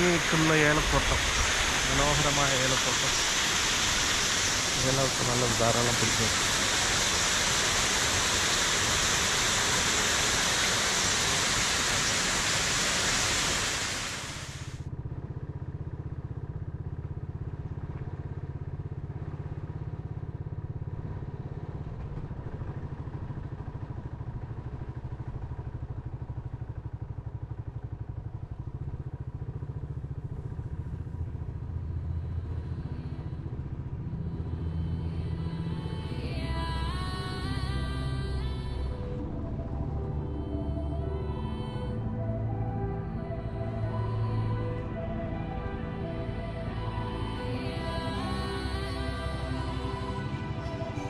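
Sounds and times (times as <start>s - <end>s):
rush of running water: 0.0s - 14.8s
motorcycle engine droning: 0.0s - 51.0s.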